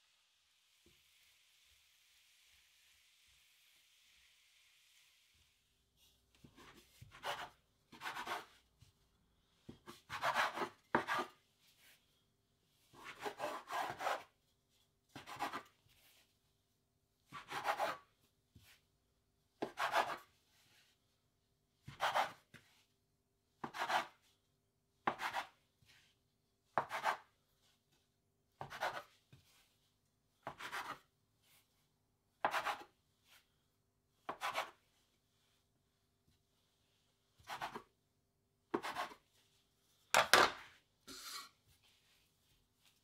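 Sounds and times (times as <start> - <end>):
bench scraper cutting dough on board: 6.4 - 8.6, 9.6 - 11.4, 13.0 - 14.3, 15.1 - 15.8, 17.3 - 18.1, 19.6 - 20.3, 21.8 - 22.7, 23.6 - 24.2, 25.0 - 25.6, 26.7 - 27.4, 28.6 - 29.2, 30.4 - 31.1, 32.4 - 33.0, 34.2 - 34.8, 37.4 - 37.9, 38.7 - 39.2.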